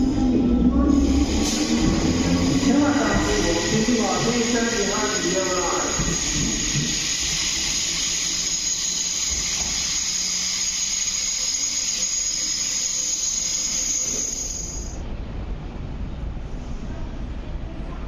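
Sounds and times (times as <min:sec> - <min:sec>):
low train rumble: 0:00.0 - 0:18.0
train wheel squeal: 0:00.9 - 0:15.0.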